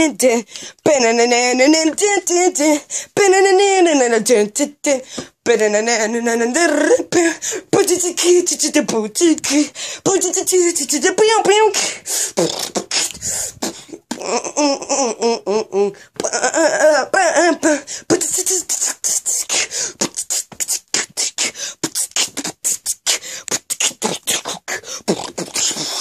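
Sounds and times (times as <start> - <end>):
person singing warbled notes: 0.0 - 26.0
beatboxing mouth clicks and pops: 12.4 - 14.4, 18.1 - 26.0.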